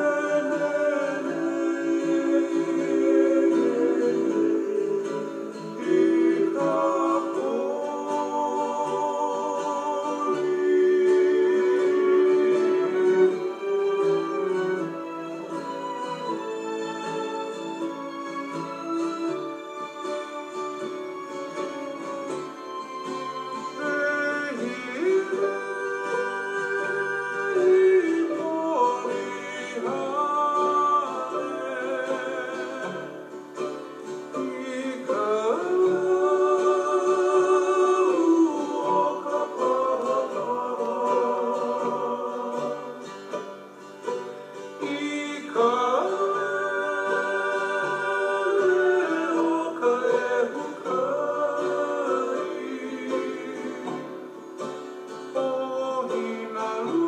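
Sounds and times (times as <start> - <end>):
person singing long wavering notes: 0.0 - 15.9, 23.6 - 43.5, 44.8 - 54.6
plucked strings: 0.0 - 57.0.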